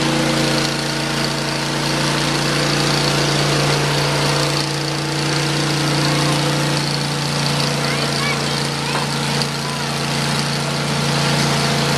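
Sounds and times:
sawmill engine humming: 0.0 - 11.9.

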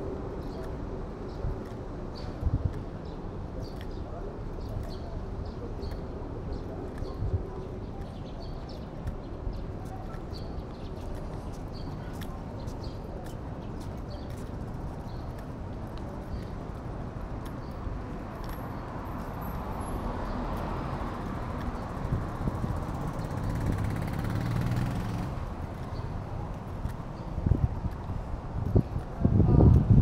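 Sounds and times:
low traffic rumble: 0.0 - 30.0
car approaching: 20.3 - 26.2
light footsteps: 25.4 - 30.0.

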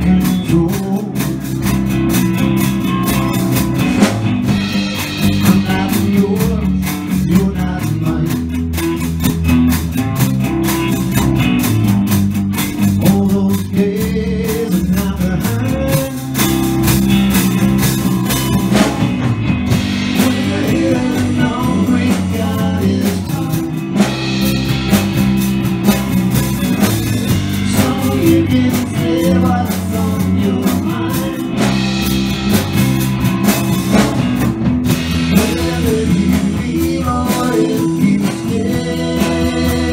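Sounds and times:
vocals: 0.0 - 9.2, 12.8 - 17.2, 19.7 - 32.6, 34.9 - 39.9
live blues band: 0.0 - 39.9.

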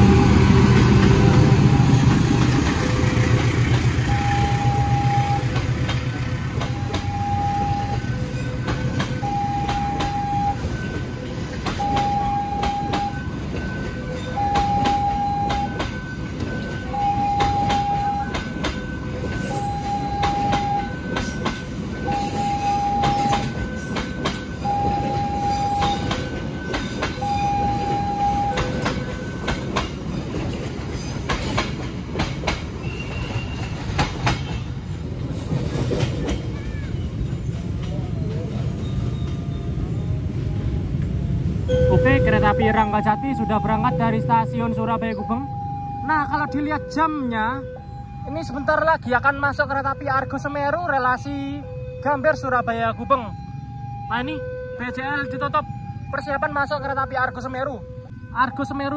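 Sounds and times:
train wheels clattering: 0.0 - 4.2, 5.0 - 39.6
two-tone crossing alarm: 0.8 - 2.7, 4.0 - 5.8, 6.6 - 29.9, 41.7 - 58.9.

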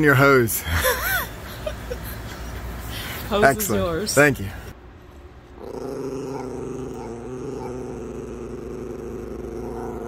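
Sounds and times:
dog growling: 5.6 - 10.0.

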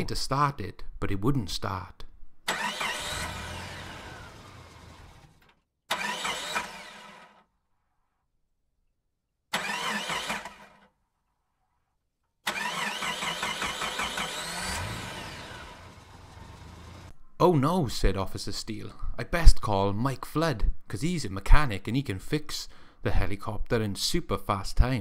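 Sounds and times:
engine cranking without starting: 2.5 - 7.5, 9.5 - 10.9, 12.4 - 17.1.

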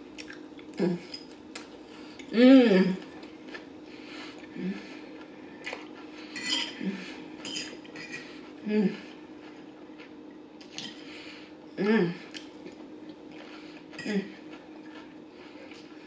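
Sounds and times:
person humming low: 0.8 - 1.1, 2.3 - 3.2, 4.5 - 5.0, 8.6 - 9.2, 11.8 - 12.3
fork clinking on plate: 6.4 - 6.8.

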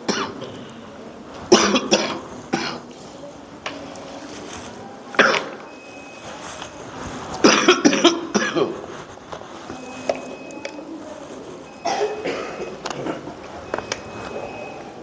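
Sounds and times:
person coughing: 1.5 - 2.9, 5.2 - 5.6, 7.4 - 8.8, 11.8 - 13.3.

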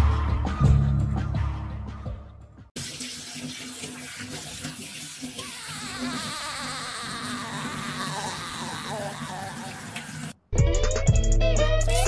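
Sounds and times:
water rushing: 2.8 - 10.4.

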